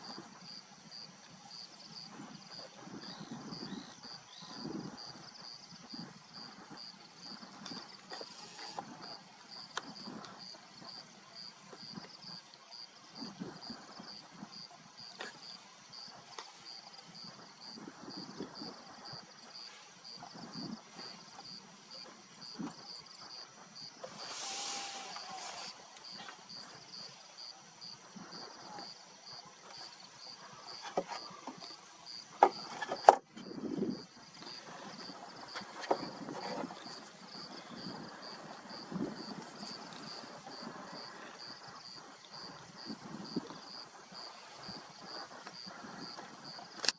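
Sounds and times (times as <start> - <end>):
insect chirping: 0.0 - 46.9.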